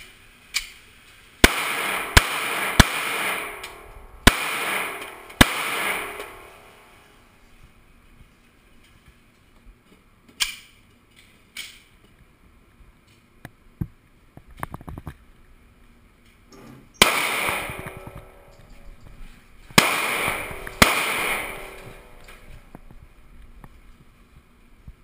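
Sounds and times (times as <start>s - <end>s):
echoing gunshots: 1.4s - 7.1s, 17.0s - 18.9s, 19.7s - 23.0s.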